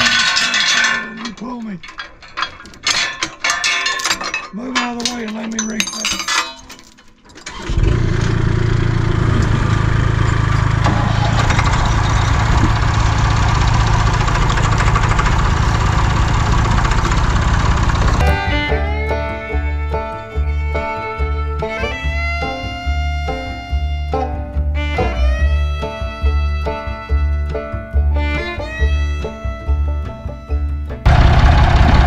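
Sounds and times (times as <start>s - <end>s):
metal clinks: 0.0s - 7.5s
tractor engine running: 7.4s - 29.4s, 30.8s - 32.0s.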